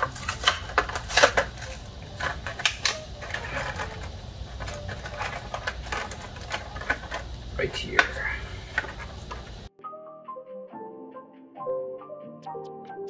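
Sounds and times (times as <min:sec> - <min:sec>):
small hard objects clinking: 0:00.0 - 0:09.7.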